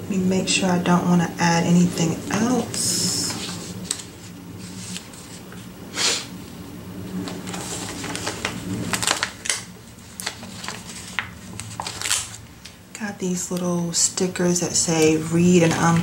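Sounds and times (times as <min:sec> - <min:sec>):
steady low hum: 0:00.0 - 0:16.0
paper sheets rustling: 0:02.3 - 0:05.7, 0:07.1 - 0:12.8.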